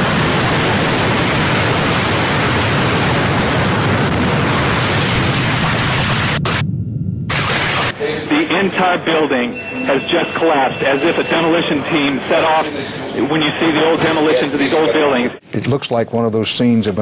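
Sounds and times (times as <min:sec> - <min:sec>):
building collapse roar: 0:00.0 - 0:06.6.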